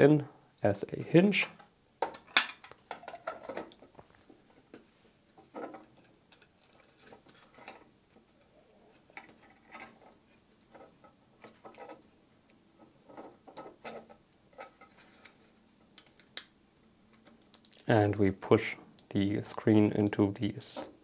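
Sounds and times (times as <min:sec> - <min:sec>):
plastic parts clicking and tapping: 0:12.8 - 0:16.5, 0:17.1 - 0:18.4.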